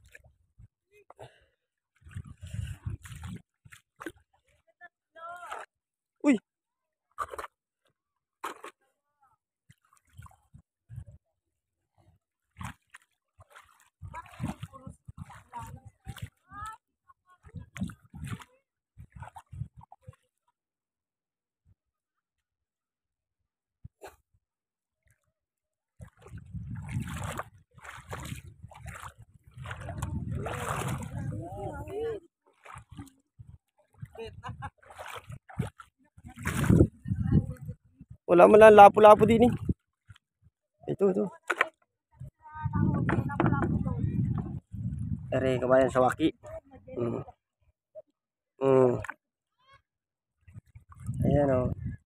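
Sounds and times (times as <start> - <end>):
footsteps splashing through water: 0.0 - 0.4, 1.4 - 5.8, 7.1 - 8.9, 9.6 - 10.8, 12.4 - 20.5, 25.9 - 37.6, 38.6 - 40.4, 50.4 - 51.2
low thuds: 42.7 - 45.1.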